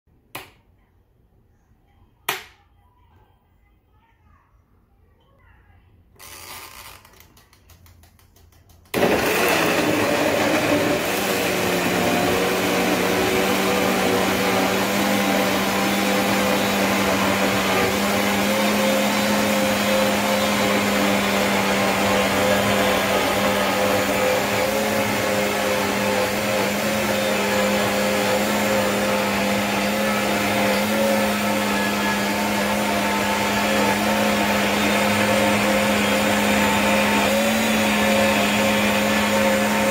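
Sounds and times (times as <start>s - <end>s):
blender motor running: 6.2s - 7.0s, 9.0s - 39.9s.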